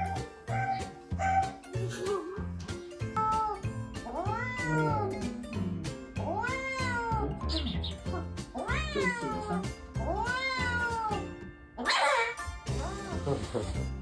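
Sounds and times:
background music: 0:00.0 - 0:14.0
kitten meowing: 0:03.2 - 0:05.4, 0:08.6 - 0:11.2.

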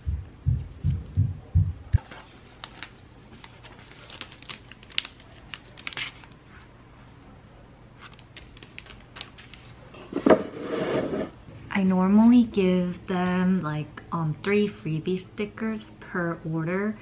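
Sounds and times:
plastic sleeve crinkling: 0:02.0 - 0:06.6, 0:08.0 - 0:09.8.

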